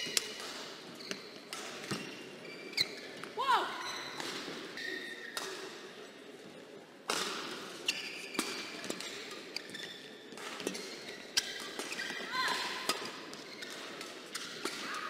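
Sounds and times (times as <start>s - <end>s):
shoes squeaking on court: 0.0s - 5.5s, 7.7s - 12.3s, 13.0s - 14.6s
racket hitting shuttlecock: 7.1s - 7.7s.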